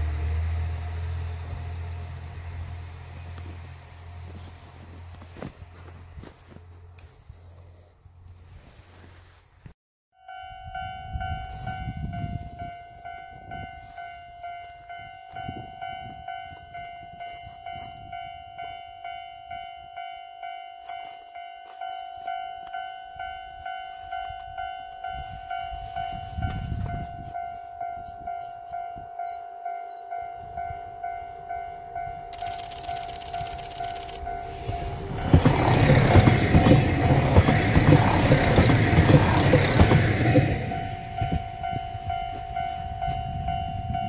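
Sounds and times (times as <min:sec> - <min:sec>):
level crossing bell ringing: 0:10.2 - 0:37.1, 0:40.2 - 0:44.0
low rumbling wind gusts: 0:10.9 - 0:13.8, 0:25.2 - 0:27.4, 0:34.2 - 0:44.0.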